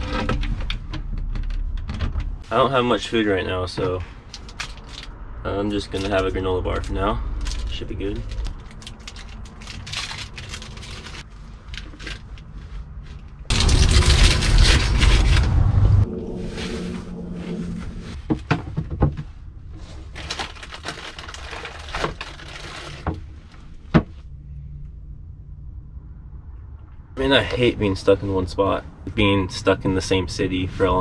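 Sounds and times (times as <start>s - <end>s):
wrapper crinkling and rustling: 4.3s - 5.1s, 6.8s - 12.6s, 20.0s - 23.1s
loud rough rumbling noise: 13.3s - 30.9s.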